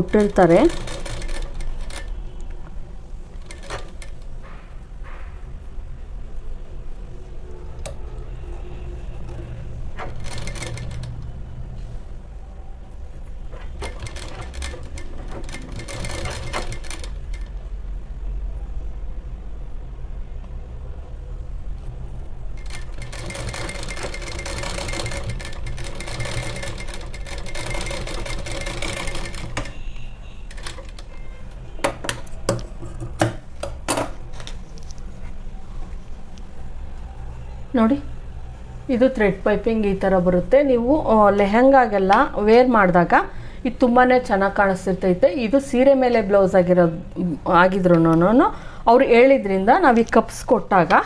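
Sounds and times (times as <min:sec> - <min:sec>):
sewing machine stitching: 0:00.0 - 0:02.2, 0:03.4 - 0:04.2, 0:09.2 - 0:11.3, 0:13.6 - 0:17.5, 0:22.6 - 0:29.8.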